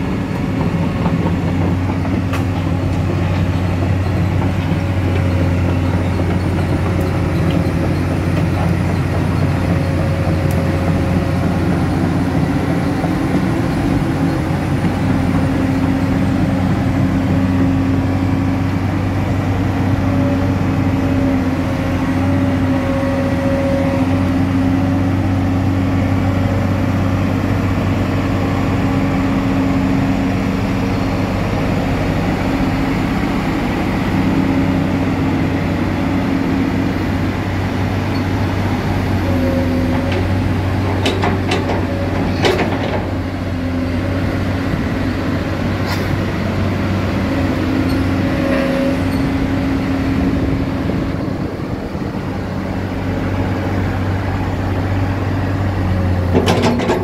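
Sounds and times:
excavator diesel engine running: 0.0s - 57.0s
high hydraulic whine: 34.8s - 57.0s.

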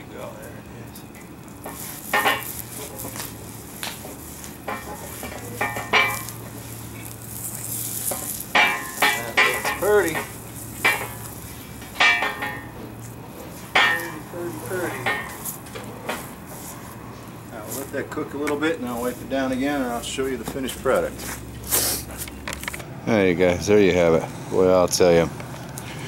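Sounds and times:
wax sizzling on hot metal: 0.1s - 22.7s
cloth scuffing across metal: 13.5s - 22.3s.

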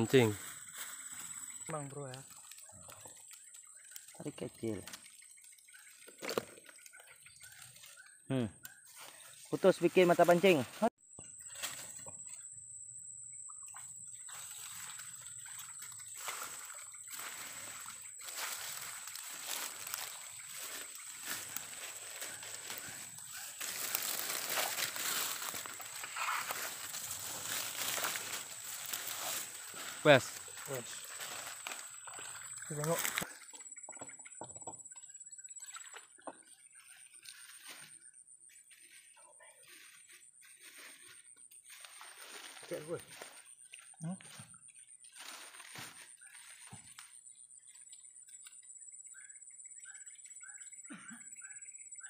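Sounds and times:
water sloshing and splashing: 0.2s - 8.2s, 13.5s - 38.1s, 38.7s - 47.2s.

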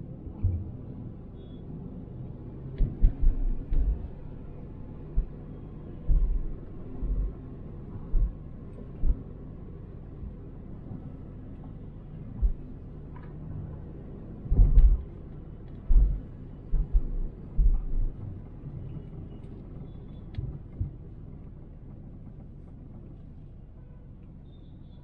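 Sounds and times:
car road noise rumble: 0.0s - 25.0s
heavy low thumps: 2.8s - 9.3s, 12.3s - 12.7s, 14.5s - 15.2s, 15.8s - 18.2s.

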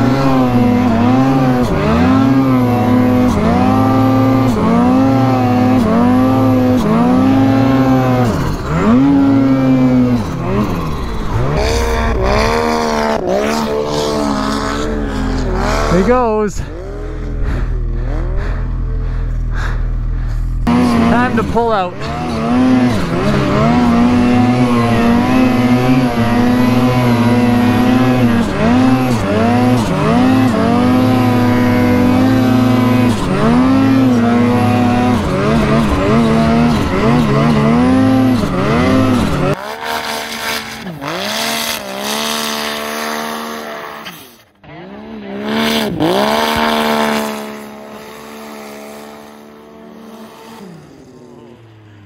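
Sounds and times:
snowmobile engine revving: 0.0s - 52.0s.

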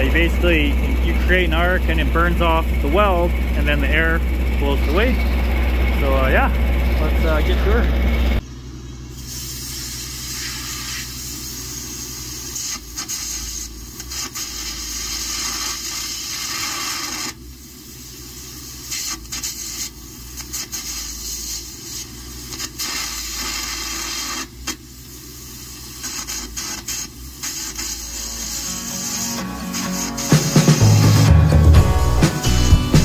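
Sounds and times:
electric arc crackling: 0.0s - 6.2s, 9.2s - 31.3s
compressed air hissing: 9.1s - 31.5s.

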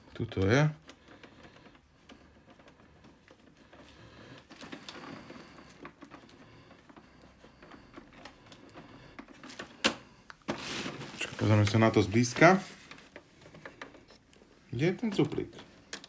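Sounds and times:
rustling: 10.4s - 16.0s
small clicks and knocks on plastic: 12.8s - 16.0s.

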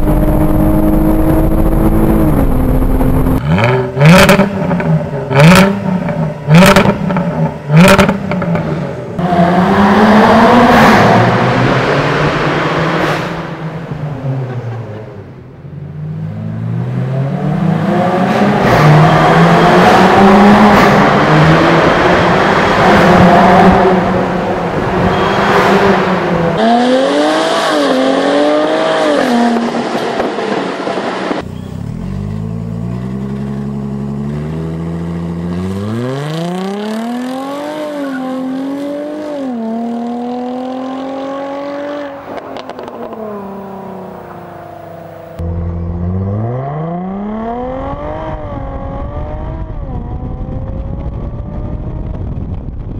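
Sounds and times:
car engine accelerating hard: 0.0s - 15.4s.

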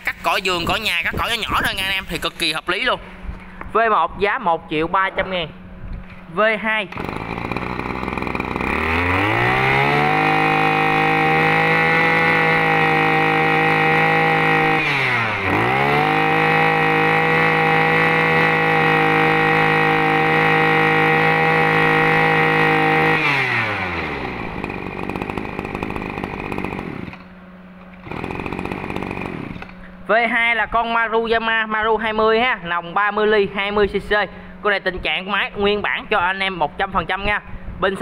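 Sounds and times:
brush cutter engine revving: 6.9s - 30.0s.

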